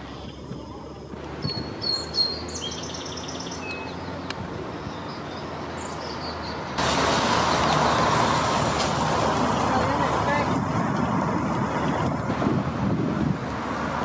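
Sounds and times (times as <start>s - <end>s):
birds chirping: 0.0s - 6.8s
traffic noise: 0.0s - 14.0s.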